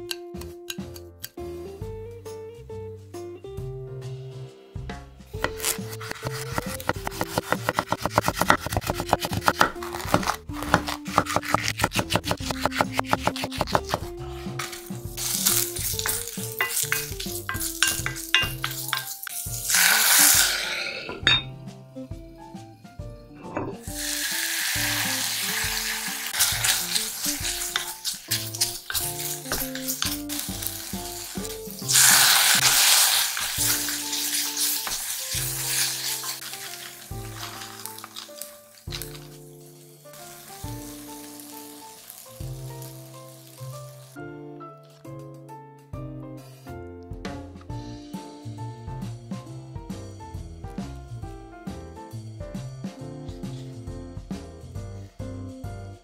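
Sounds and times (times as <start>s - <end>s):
vegetables sizzling in a pot: 5.3s - 21.4s, 23.8s - 44.2s
knife chopping on wooden board: 5.4s - 15.3s
liquid hissing in hot pot: 14.5s - 16.9s, 18.6s - 21.3s, 23.8s - 39.0s, 39.6s - 44.2s
wooden spatula scraping a pot: 25.2s - 38.4s.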